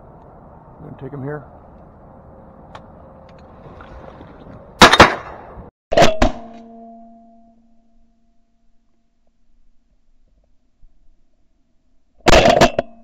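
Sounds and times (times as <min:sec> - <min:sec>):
shotgun blasts: 0:04.8 - 0:06.4.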